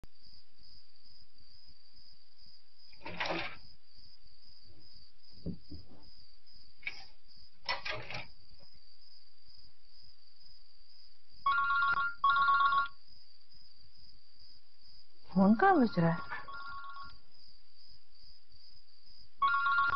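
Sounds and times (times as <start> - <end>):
soft knocks and rustles: 5.4 - 8.7
two-tone phone ringtone: 11.5 - 13.0, 16.2 - 17.2, 19.4 - 19.9.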